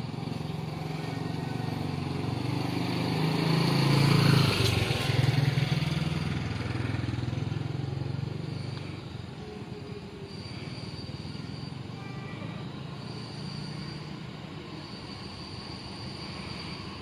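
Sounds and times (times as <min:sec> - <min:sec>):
motorcycle passing by: 0:00.0 - 0:09.5.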